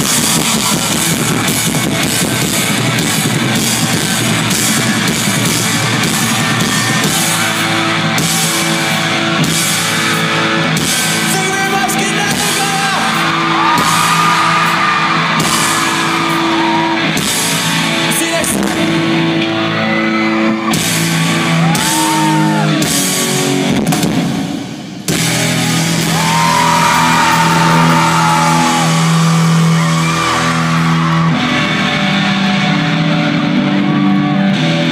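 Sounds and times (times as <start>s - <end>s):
live rock band playing: 0.0s - 34.9s.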